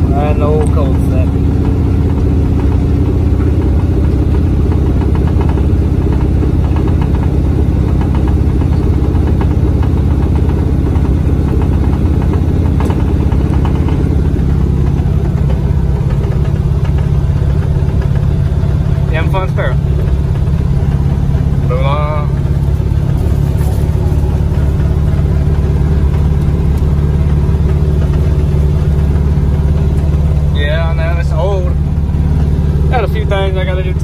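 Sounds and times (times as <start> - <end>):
car engine running: 0.0 - 34.0.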